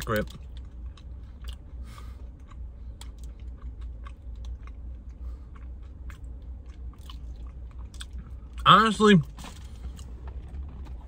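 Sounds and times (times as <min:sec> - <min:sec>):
low steady hum: 0:00.0 - 0:11.0
person chewing crunchy bar: 0:00.2 - 0:08.6.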